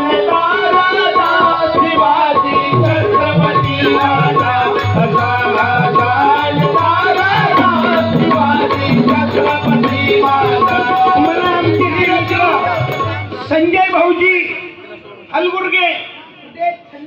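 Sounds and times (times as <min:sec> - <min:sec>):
hand drum beat: 0:02.8 - 0:13.3
melody line: 0:07.4 - 0:09.9.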